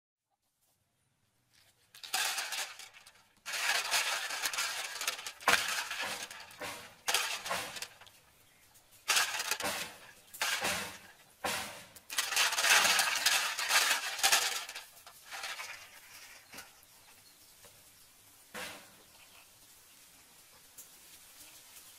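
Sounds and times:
shells clinking and grating: 0:01.9 - 0:08.1, 0:09.1 - 0:11.1, 0:12.0 - 0:16.6.

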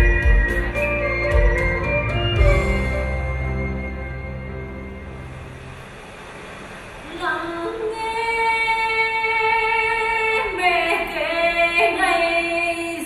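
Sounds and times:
woman singing long notes: 0:07.1 - 0:13.0.

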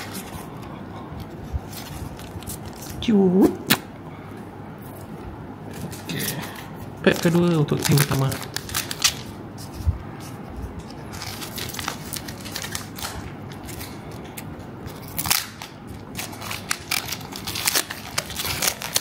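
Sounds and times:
foil wrapper crinkling: 0:07.0 - 0:09.4, 0:11.1 - 0:19.0.

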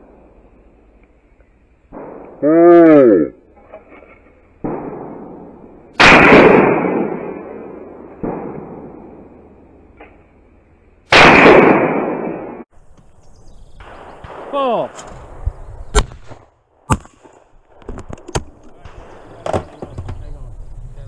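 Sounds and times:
faint bangs: 0:00.0 - 0:02.4, 0:03.5 - 0:10.4, 0:13.8 - 0:20.6
loud shotgun blasts: 0:01.9 - 0:02.8, 0:04.6 - 0:10.2, 0:11.1 - 0:12.7, 0:13.8 - 0:18.1.

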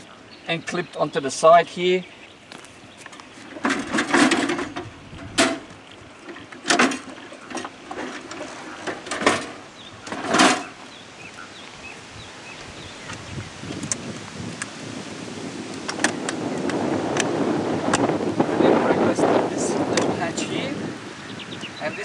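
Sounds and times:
camper fittings rattling: 0:03.1 - 0:10.8.

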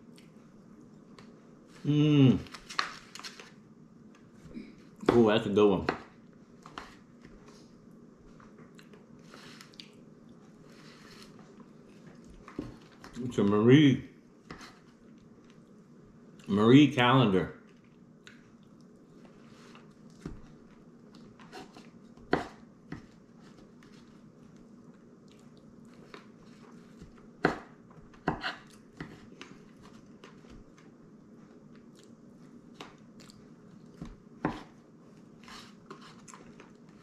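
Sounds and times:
quiet chewing: 0:00.0 - 0:01.8, 0:06.6 - 0:13.3, 0:17.6 - 0:22.1, 0:23.0 - 0:27.2, 0:28.5 - 0:34.2
faint steady hum: 0:00.0 - 0:37.0.

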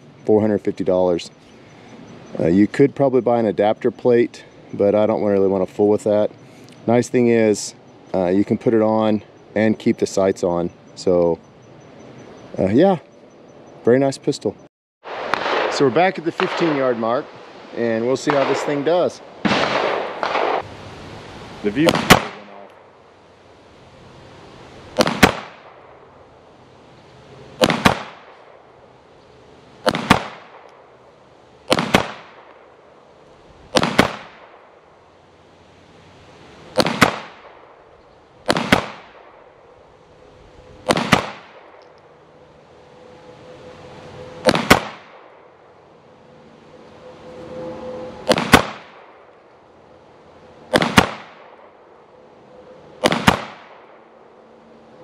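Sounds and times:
pistol gunshots: 0:15.1 - 0:17.1, 0:18.2 - 0:20.6, 0:21.8 - 0:22.8, 0:25.0 - 0:26.0, 0:27.6 - 0:28.6, 0:29.8 - 0:30.8, 0:31.7 - 0:32.7, 0:33.7 - 0:34.7, 0:36.7 - 0:37.8, 0:38.4 - 0:39.5, 0:40.8 - 0:41.8, 0:44.4 - 0:45.4, 0:48.2 - 0:49.2, 0:50.7 - 0:51.8, 0:53.0 - 0:54.0.

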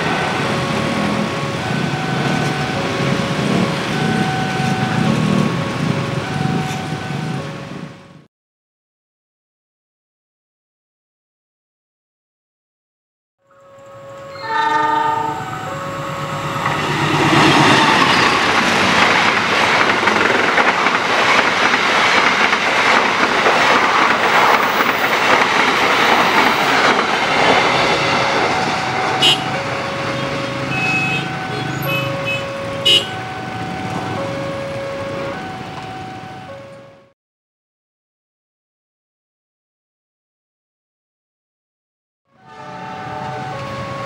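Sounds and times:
locomotive engine running: 0:00.0 - 0:07.9, 0:13.6 - 0:36.8
locomotive horn: 0:13.4 - 0:18.3, 0:26.2 - 0:37.1, 0:42.3 - 0:44.0
level-crossing two-tone chime: 0:13.5 - 0:18.6, 0:27.8 - 0:37.1
wheels clattering over rail joints: 0:15.6 - 0:34.5.

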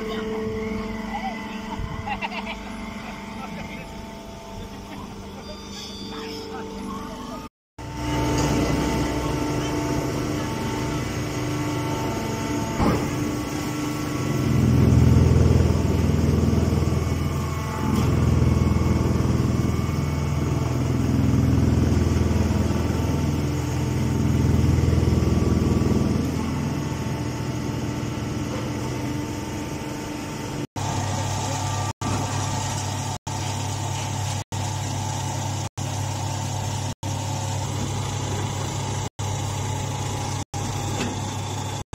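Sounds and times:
baling press machine hum: 0:00.0 - 0:41.9.

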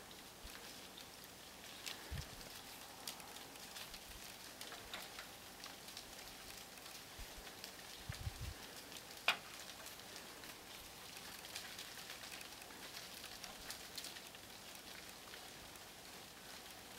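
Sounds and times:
faint crackles and ticks: 0:00.0 - 0:16.9.

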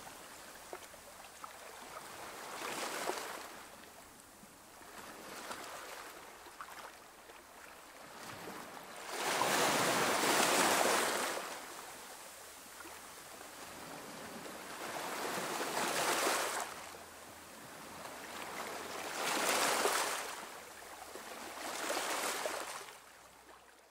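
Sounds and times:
sea waves washing onto shore: 0:08.4 - 0:12.3.

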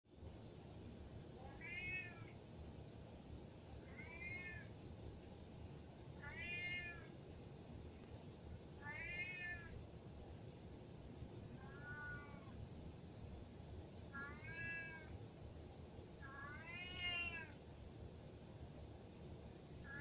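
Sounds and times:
cat meowing: 0:01.4 - 0:02.4, 0:03.8 - 0:04.7, 0:06.2 - 0:07.1, 0:08.8 - 0:09.8, 0:11.6 - 0:12.6, 0:14.1 - 0:15.2, 0:16.2 - 0:17.6.

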